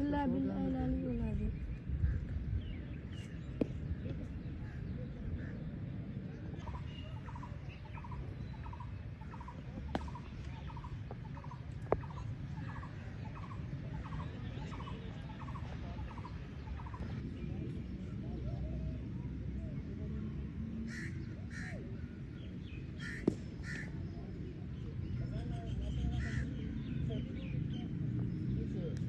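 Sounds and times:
steady low rumble: 0.0 - 29.0
cricket bat striking ball: 9.8 - 10.3, 23.2 - 23.6.

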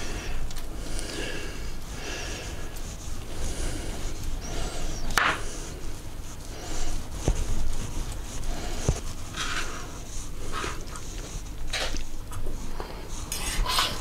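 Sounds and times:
knife scraping through meat: 13.2 - 14.0.

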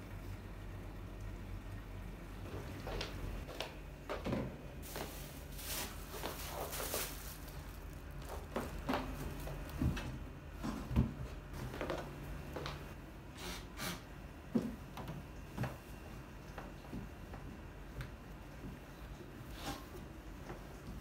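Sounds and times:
steady low hum: 0.0 - 21.0.

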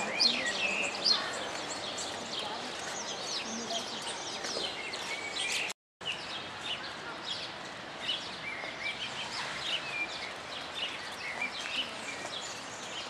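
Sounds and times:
outdoor background noise: 0.0 - 13.0
small birds chirping: 0.0 - 13.0.

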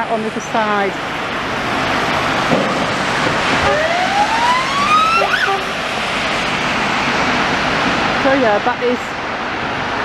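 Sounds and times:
traffic on wet road: 0.0 - 10.0
rising whine: 1.4 - 8.2.

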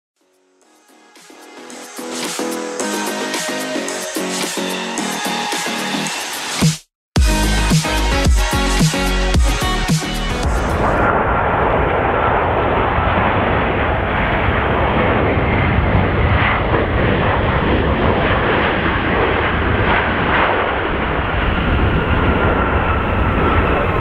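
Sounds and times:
jet engine noise: 10.3 - 24.0.

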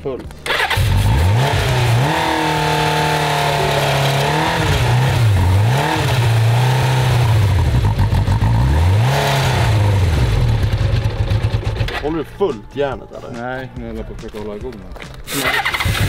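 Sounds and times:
motorcycle engine running unevenly: 0.8 - 12.1.

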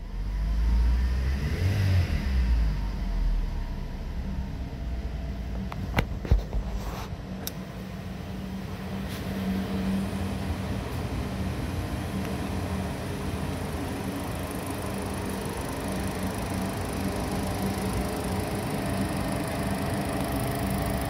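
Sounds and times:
car engine idling: 11.4 - 21.0.

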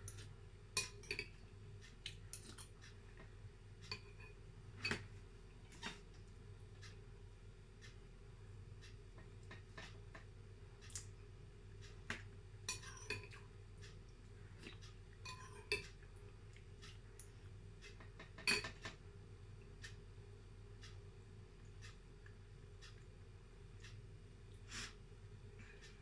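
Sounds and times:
quiet chewing: 0.0 - 4.3, 8.8 - 18.4, 20.8 - 25.0
spoon clinking on ceramic bowl: 15.3 - 15.8, 18.4 - 18.8.

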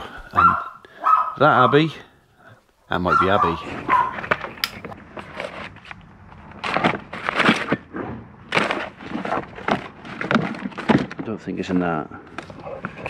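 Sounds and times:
items knocking together: 8.5 - 11.4.

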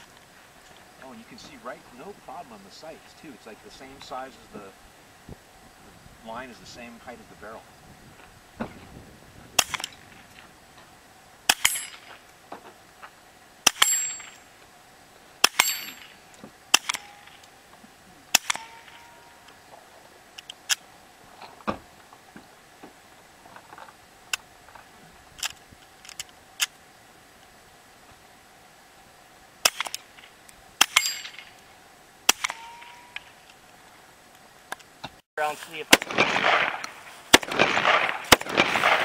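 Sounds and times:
suppressed pistol shots: 9.6 - 10.2, 11.5 - 12.1, 13.6 - 14.3, 16.7 - 17.5, 18.3 - 19.0, 29.6 - 30.1, 32.3 - 33.0, 35.9 - 39.0
steel plate target clang: 11.5 - 12.2, 13.6 - 14.5, 15.4 - 17.5, 18.3 - 19.4, 30.8 - 31.6, 32.3 - 33.4.

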